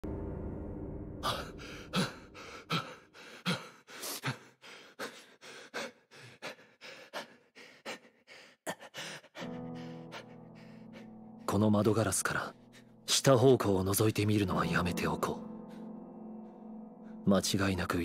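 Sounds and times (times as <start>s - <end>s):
man panting hard: 1.3s - 11.2s.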